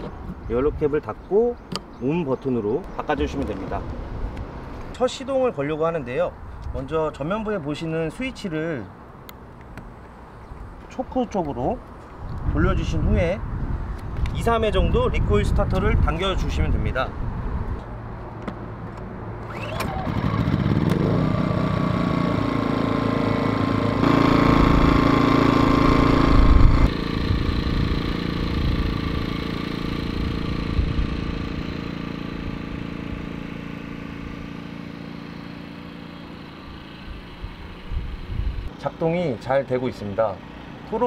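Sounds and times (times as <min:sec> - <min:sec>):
recoil starter pulls: 0:19.4 - 0:21.1
generator engine running: 0:19.5 - 0:38.9.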